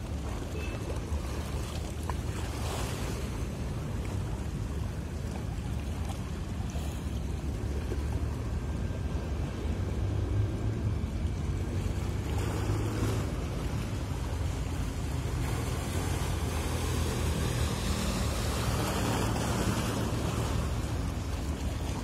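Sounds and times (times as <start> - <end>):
boat engine rumbling: 0.0 - 22.0
wind and water hiss: 0.0 - 22.0.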